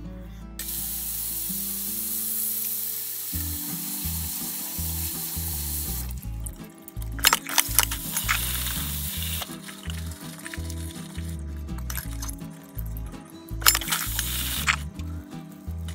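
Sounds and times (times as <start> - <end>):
tap water running into steel bowl: 0.6 - 6.2, 7.0 - 12.4, 13.6 - 14.8
hands splashing wet fruit: 4.2 - 14.9.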